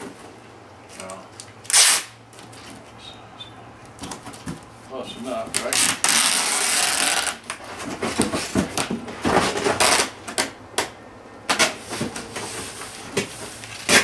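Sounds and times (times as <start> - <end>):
hands taping cardboard box: 1.7 - 2.1, 5.5 - 10.9, 11.5 - 14.0.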